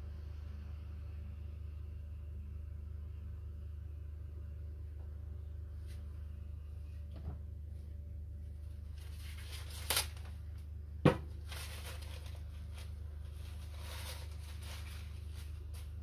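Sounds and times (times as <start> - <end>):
steady low hum: 0.0 - 16.0
faint rustling: 11.4 - 16.0.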